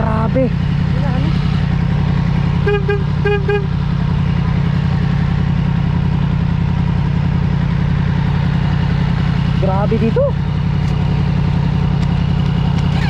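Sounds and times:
motorcycle engine running: 0:00.0 - 0:13.0
vehicle horn beeps: 0:02.6 - 0:03.8.

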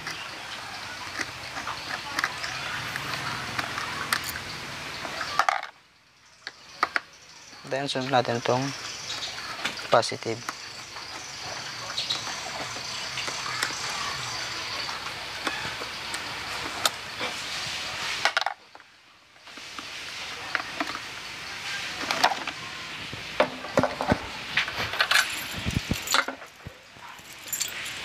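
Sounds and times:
metal tool clinks and knocks: 0:25.0 - 0:28.0.

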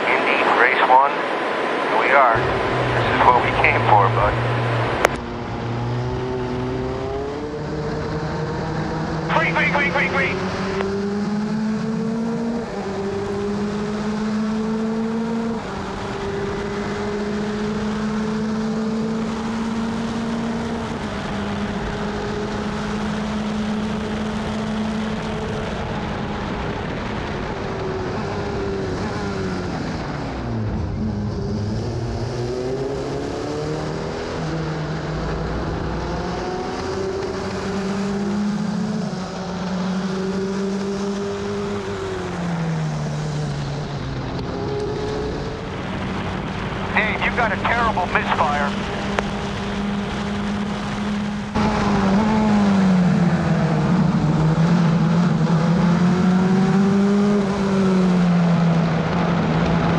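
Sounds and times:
race car engine: 0:00.0 - 0:59.9.

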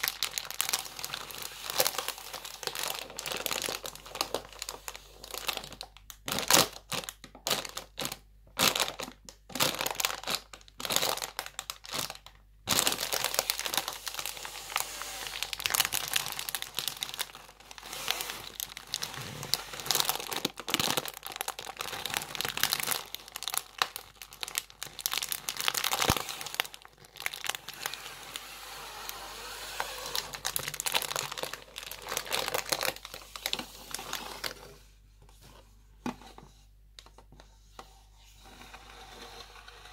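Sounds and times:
plastic crisp packet crinkling: 0:00.0 - 0:34.6.

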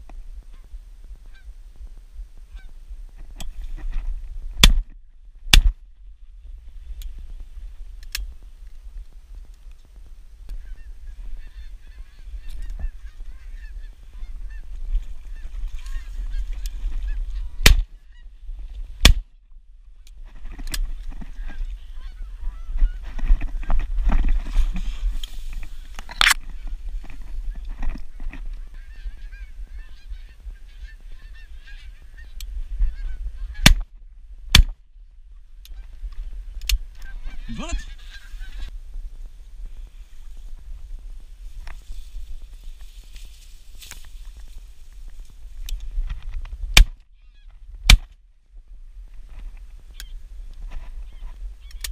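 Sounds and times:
wind rumble on microphone: 0:00.0 - 0:51.9
geese honking: 0:10.5 - 0:18.3, 0:21.3 - 0:23.7, 0:28.5 - 0:33.8, 0:37.0 - 0:38.7.

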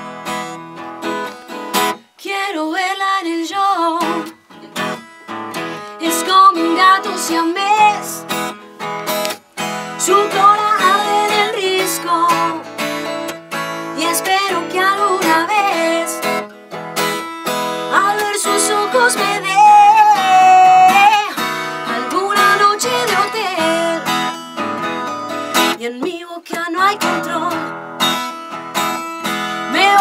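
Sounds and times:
acoustic guitar strumming: 0:00.0 - 0:02.2, 0:02.8 - 0:30.0
person singing: 0:05.6 - 0:08.3, 0:09.9 - 0:12.8, 0:13.9 - 0:16.4, 0:17.8 - 0:24.4, 0:25.7 - 0:27.7, 0:29.6 - 0:30.0.

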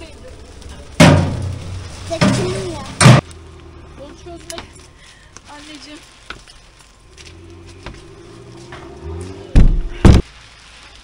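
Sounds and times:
loud heavy thump: 0:09.5 - 0:10.2.

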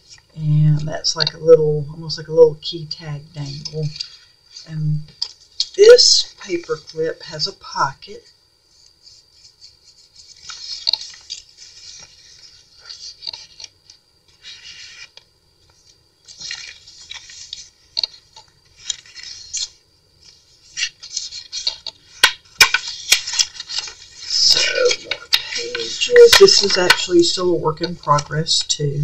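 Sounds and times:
paper rustling and scraping: 0:08.7 - 0:27.2.

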